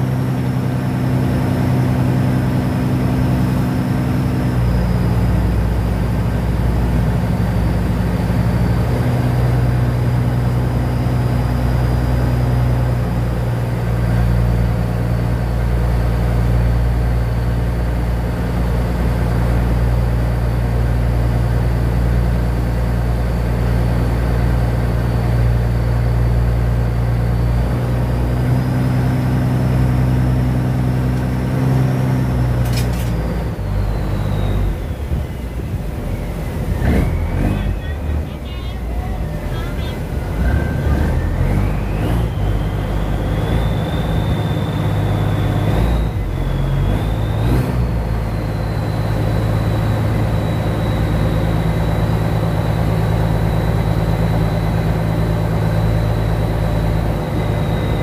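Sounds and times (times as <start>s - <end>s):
boat engine running: 0.0s - 58.0s
faint high whine: 28.3s - 58.0s.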